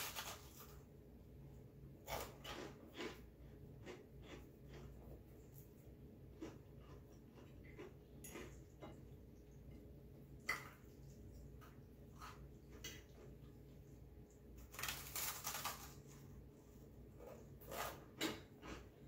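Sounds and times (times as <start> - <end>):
crunching bread: 0.0 - 0.9, 2.0 - 5.3, 14.6 - 16.4
soft chewing: 2.1 - 19.0.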